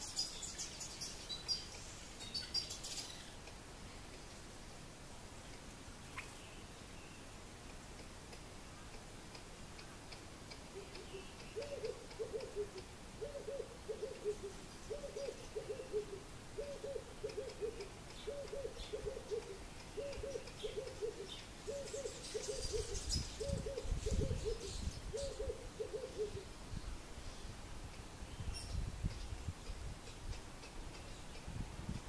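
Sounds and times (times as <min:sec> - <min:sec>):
faint high ticks: 0:01.5 - 0:04.3, 0:07.6 - 0:13.0, 0:17.2 - 0:21.5, 0:29.0 - 0:32.0
bird hooting call: 0:10.7 - 0:26.5.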